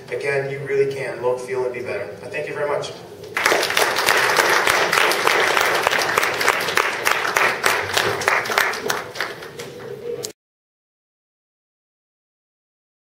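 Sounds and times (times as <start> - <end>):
small audience applauding: 3.4 - 10.0.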